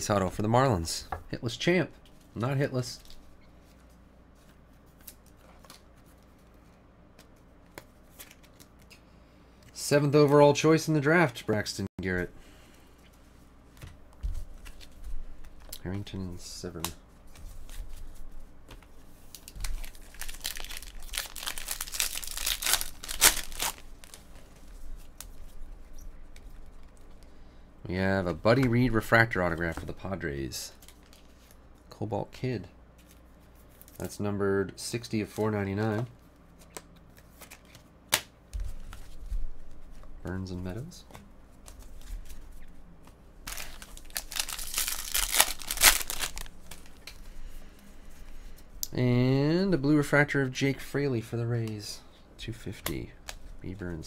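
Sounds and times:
wrapper tearing and crinkling: 19.3 - 24.3, 43.4 - 47.1.

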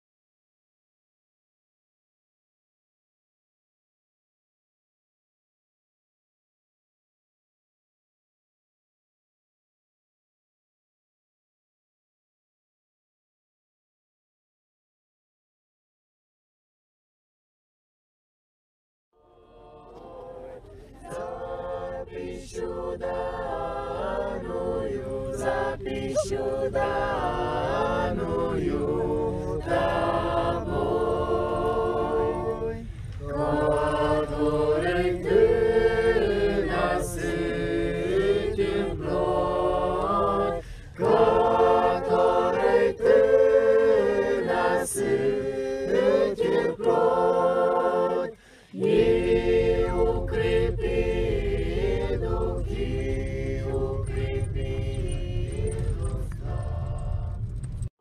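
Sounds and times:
choir singing a cappella: 19.2 - 57.7
low steady rumble: 19.2 - 58.0.

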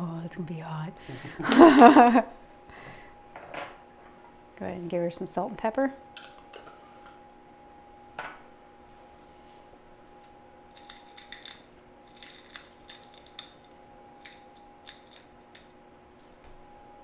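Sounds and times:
pepper mill grinding clicks: 10.8 - 15.7.

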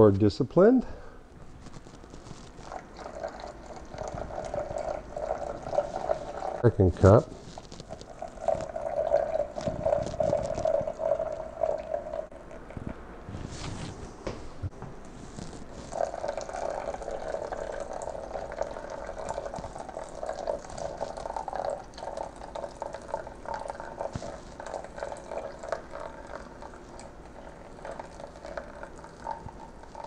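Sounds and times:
water trickling onto coffee grounds: 1.6 - 14.0, 15.1 - 30.0.

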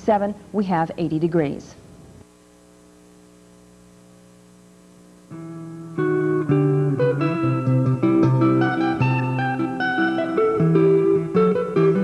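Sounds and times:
plucked guitar-like notes: 5.3 - 12.0.

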